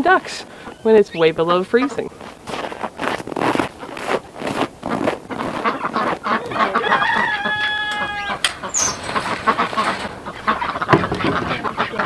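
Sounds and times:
chickens clucking: 0.0 - 2.1, 5.3 - 12.0
rooster crowing: 6.3 - 8.9.

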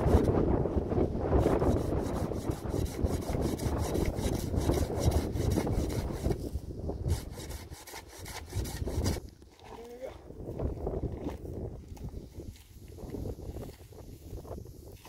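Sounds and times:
hand saw cutting wood: 1.3 - 6.4, 7.0 - 9.3.

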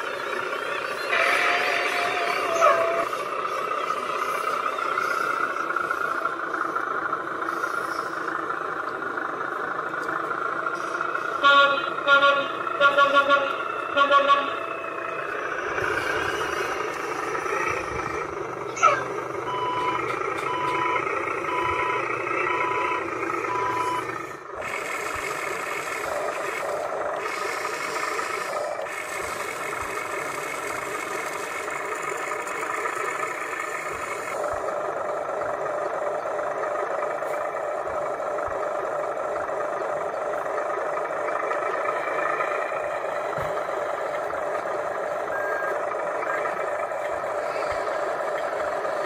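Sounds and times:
steady engine sound: 0.0 - 49.0
truck engine running: 0.0 - 49.0
reversing alarm beeping: 18.8 - 24.2, 45.1 - 46.7.

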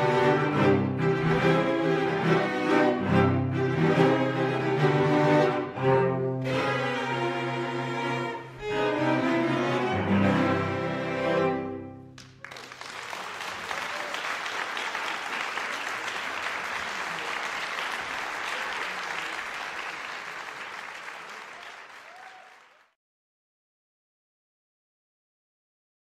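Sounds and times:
audience applauding: 12.2 - 23.0.

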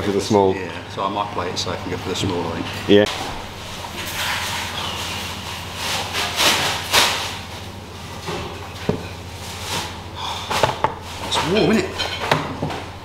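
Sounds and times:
steady low hum: 0.0 - 13.0
handling rustling and scraping: 2.8 - 12.9.

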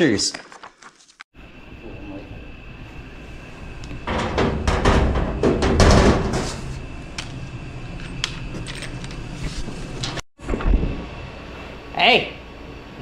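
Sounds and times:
metal panel scraping and clattering: 4.1 - 6.7.

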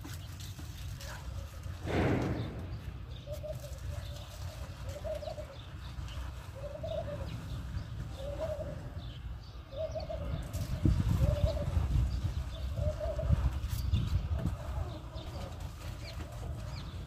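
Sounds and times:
low rumbling and knocking: 1.8 - 3.2
dove cooing: 3.1 - 13.6.

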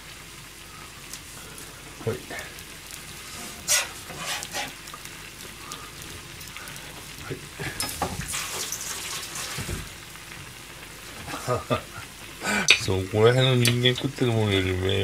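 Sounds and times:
food sizzling and bubbling in broth: 0.0 - 15.0
small pops: 12.6 - 12.9.

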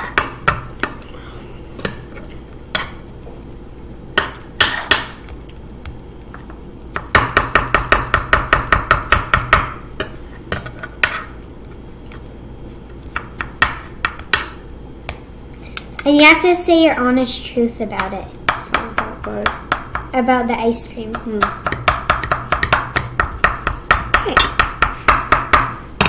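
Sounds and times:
spoons chopping on wooden board: 0.0 - 1.0, 4.2 - 5.3, 6.3 - 11.3, 13.1 - 15.2, 18.0 - 20.2, 21.0 - 25.8.

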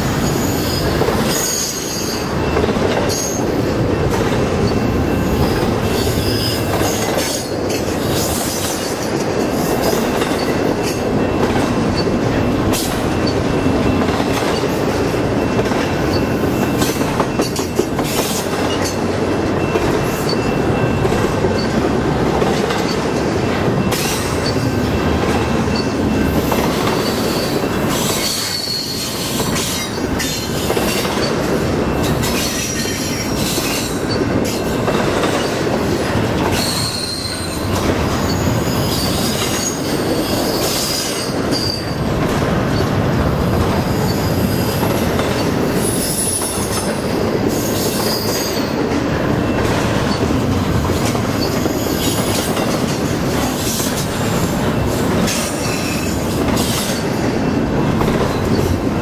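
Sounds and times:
steel wheels rumbling on rail: 0.0 - 59.0
high wheel squeal: 0.1 - 3.6, 4.6 - 8.6, 25.7 - 34.7, 36.5 - 42.0, 45.8 - 48.8, 53.6 - 57.6.

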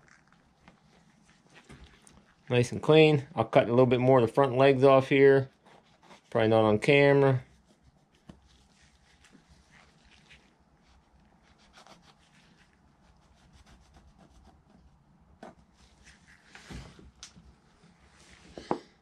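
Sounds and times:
hands rubbing and handling pelt: 7.6 - 12.8.

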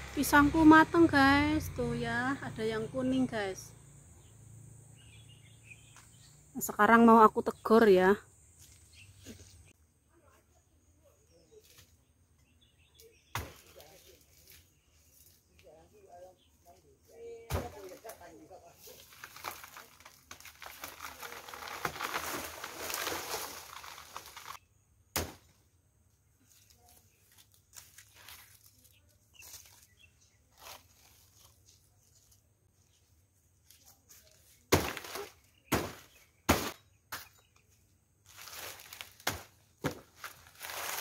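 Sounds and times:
big leaves rustling: 13.0 - 24.6, 26.3 - 36.8, 38.2 - 41.0.

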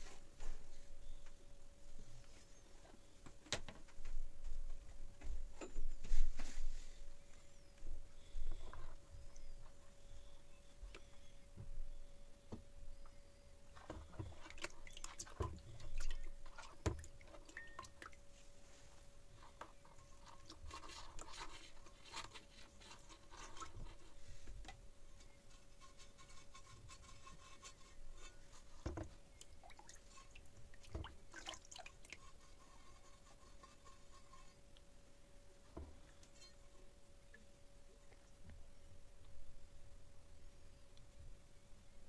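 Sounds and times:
faint steady hum: 0.0 - 42.0
water splashing and dripping: 29.4 - 32.2.

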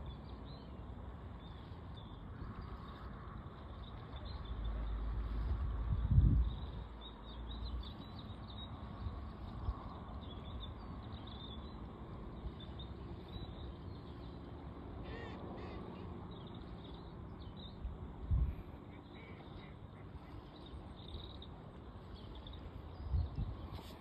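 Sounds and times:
distant bird calls: 6.4 - 24.0.

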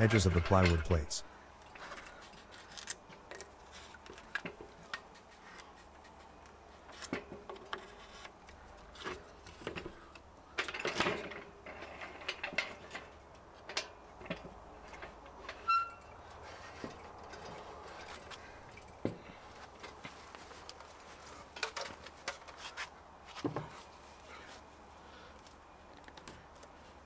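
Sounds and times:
brief squeak: 15.6 - 16.1.

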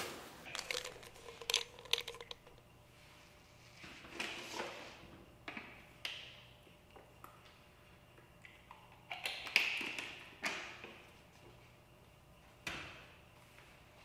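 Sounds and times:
plastic bottle crackling: 0.0 - 2.6
plastic bottle crinkling: 0.0 - 2.6.

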